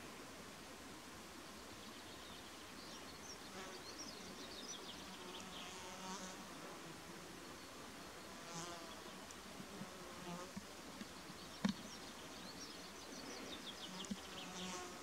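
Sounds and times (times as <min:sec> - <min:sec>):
insect buzzing: 0:08.1 - 0:12.4, 0:13.1 - 0:15.0.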